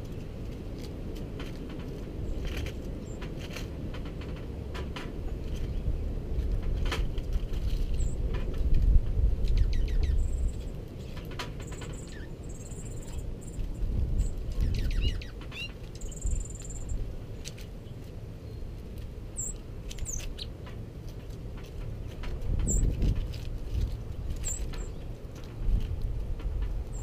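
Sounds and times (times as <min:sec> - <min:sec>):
beaks pecking at seed: 0:05.4 - 0:27.0
songbird chirps and chip calls: 0:09.4 - 0:20.6, 0:22.6 - 0:23.0.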